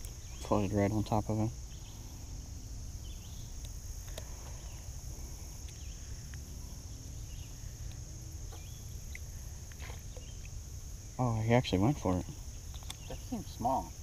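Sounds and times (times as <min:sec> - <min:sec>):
constant low rumble: 0:00.0 - 0:14.0
high-pitched insect drone: 0:00.0 - 0:14.0
faint clicks and chirps: 0:03.3 - 0:04.8, 0:05.6 - 0:06.5, 0:07.4 - 0:10.6, 0:12.6 - 0:13.4.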